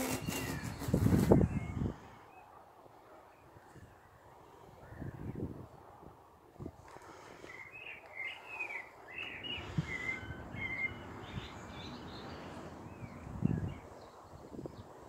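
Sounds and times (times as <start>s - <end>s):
songbird chirping: 7.4s - 15.0s.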